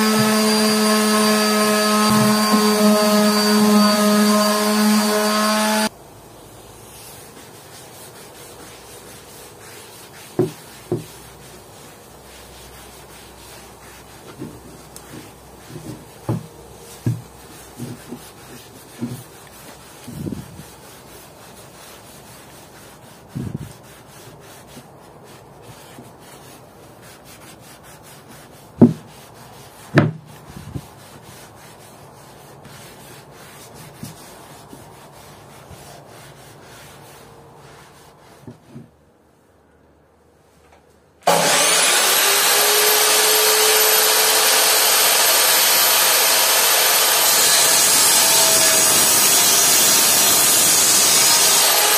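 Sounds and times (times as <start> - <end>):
knocks and handling sounds: 14.2 - 20.2
electric motor whirring: 41.3 - 51.9.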